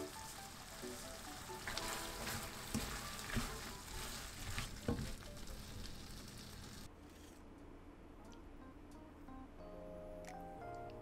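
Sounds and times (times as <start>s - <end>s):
food sizzling in a frying pan: 0.0s - 6.9s
spatula scraping and knocking pan: 1.6s - 5.6s.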